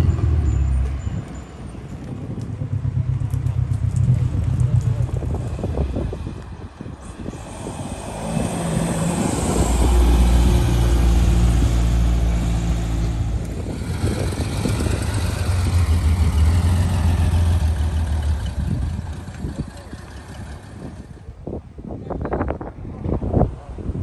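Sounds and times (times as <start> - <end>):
sports car engine passing: 7.2 - 21.2.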